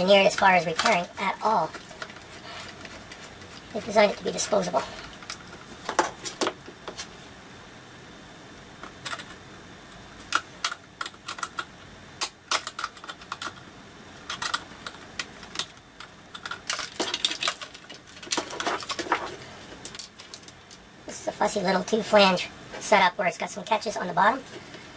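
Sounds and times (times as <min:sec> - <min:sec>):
plastic parts clicking: 0:00.3 - 0:01.1, 0:08.8 - 0:09.4, 0:10.3 - 0:20.8.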